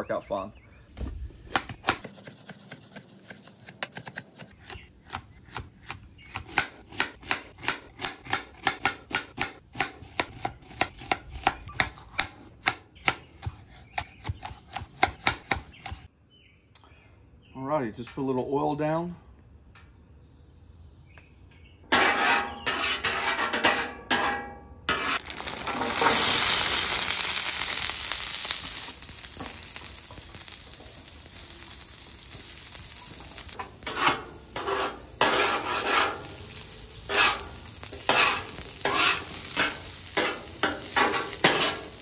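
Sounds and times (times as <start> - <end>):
metal spatula scraping griddle: 21.9 - 26.9, 32.4 - 42.0
fries sizzling on griddle: 24.9 - 42.0.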